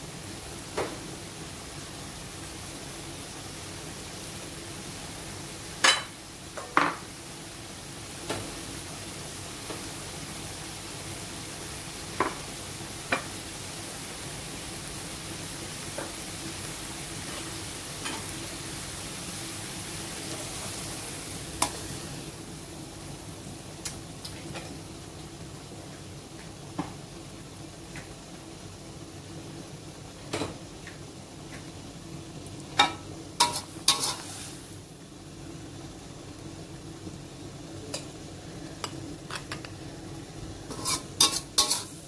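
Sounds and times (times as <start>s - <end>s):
stir-fry sizzling in a wok: 0.0s - 42.0s.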